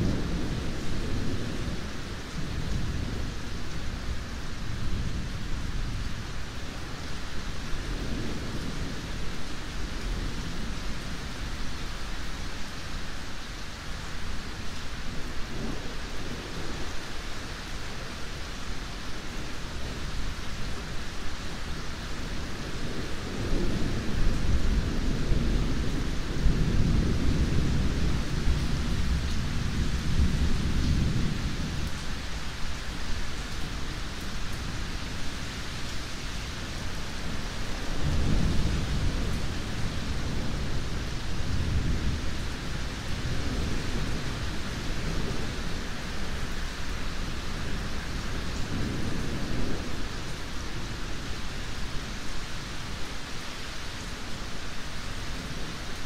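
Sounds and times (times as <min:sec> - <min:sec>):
steady rain: 0:00.0 - 0:56.0
thunder rumbling: 0:36.6 - 0:46.5.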